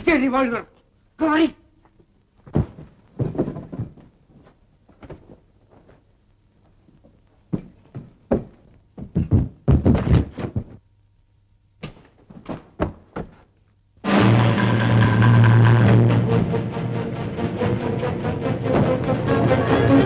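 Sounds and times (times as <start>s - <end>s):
bodies bumping against furniture: 2.4s - 6.0s, 7.0s - 10.8s.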